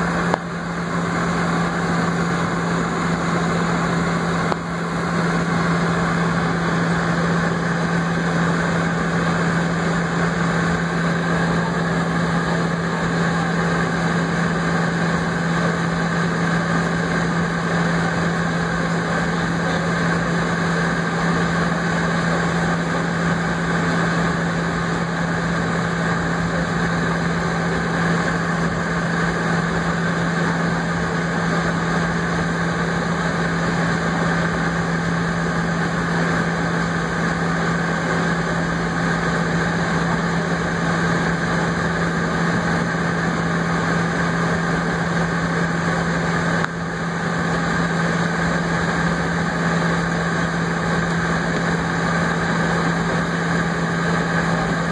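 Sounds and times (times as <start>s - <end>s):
jet engines idling: 0.0s - 54.9s
low hum: 0.0s - 54.9s.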